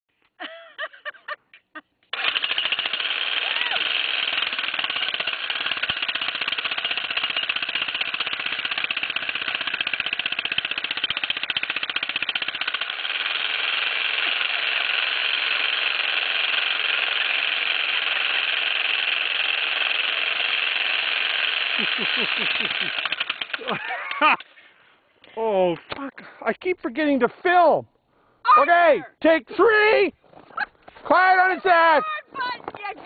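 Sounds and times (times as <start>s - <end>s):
jackhammer hammering: 2.1s - 24.4s.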